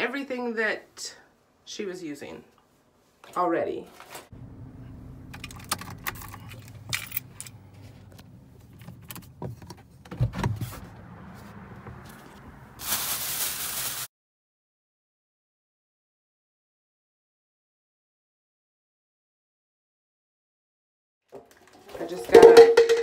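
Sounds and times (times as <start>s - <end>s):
car engine idling: 4.4s - 12.8s
light clicks and rattles: 5.3s - 10.1s
plastic bags rustling: 12.8s - 14.1s.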